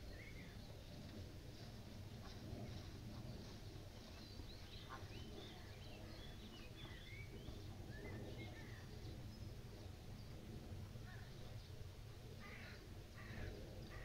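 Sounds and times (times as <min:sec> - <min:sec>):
low background rumble: 0:00.0 - 0:14.0
small birds chirping: 0:02.6 - 0:11.8.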